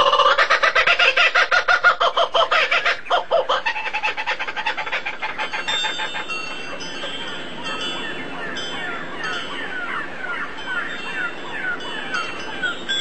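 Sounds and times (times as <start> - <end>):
fowl clucking: 0.0 - 7.0.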